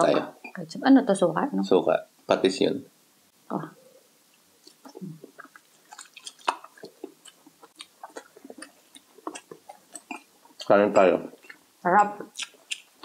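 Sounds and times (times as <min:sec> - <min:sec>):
person chewing with mouth smacks: 0:04.6 - 0:10.7, 0:11.3 - 0:13.0.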